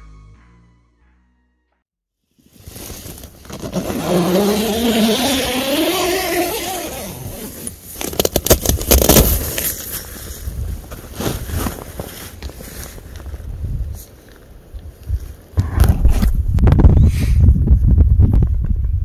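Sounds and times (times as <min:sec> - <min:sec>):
rustling: 0:02.4 - 0:14.5
wind buffeting microphone: 0:14.7 - 0:19.0.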